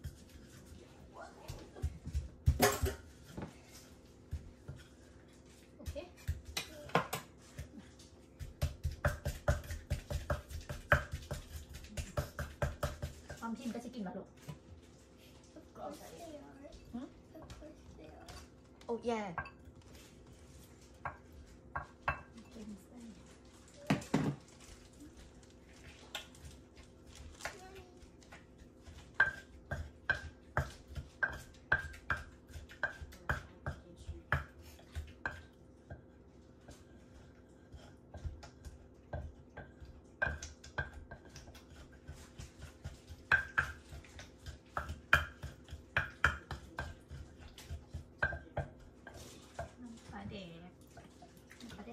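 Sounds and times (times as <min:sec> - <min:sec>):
wooden pestle pounding in mortar: 0:05.8 - 0:13.6, 0:21.0 - 0:22.4, 0:28.4 - 0:51.1.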